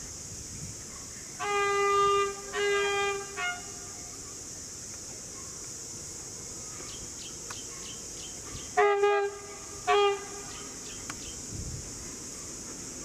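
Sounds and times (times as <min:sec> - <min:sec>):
diesel locomotive horn blasts: 0:01.4 - 0:04.0, 0:08.7 - 0:10.7.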